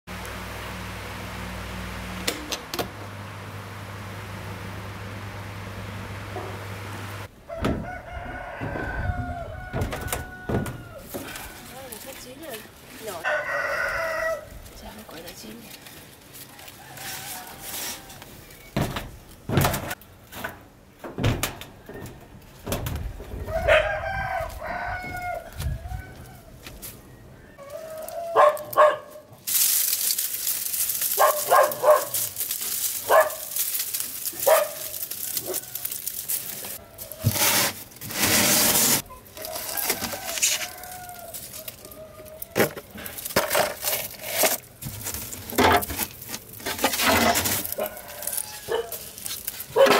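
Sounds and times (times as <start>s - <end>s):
rooster crowing: 7.4s - 11.6s, 13.2s - 14.5s, 16.4s - 18.2s, 23.4s - 26.6s, 27.5s - 28.9s, 39.3s - 42.6s, 47.6s - 49.0s
vines rustling and scraping: 7.8s - 20.6s, 21.8s - 49.9s.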